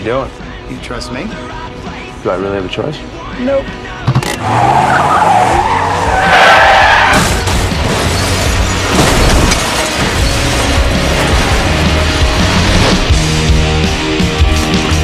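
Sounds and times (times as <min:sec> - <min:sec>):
dramatic music: 0:03.7 - 0:15.0
car tyres squealing: 0:04.3 - 0:08.9
car crash metal and glass smashing: 0:06.6 - 0:13.2.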